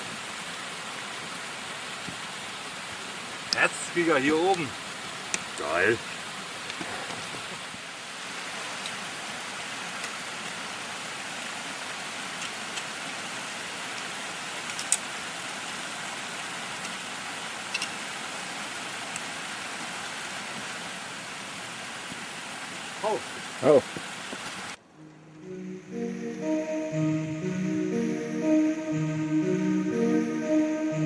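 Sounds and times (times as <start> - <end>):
stream running over rocks: 0.0 - 24.8.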